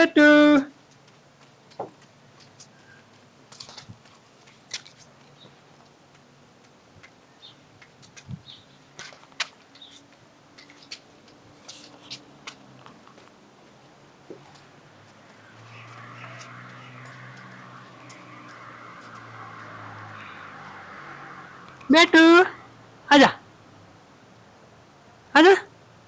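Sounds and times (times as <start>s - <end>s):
toddler footsteps on brick floor: 0.7s - 20.8s.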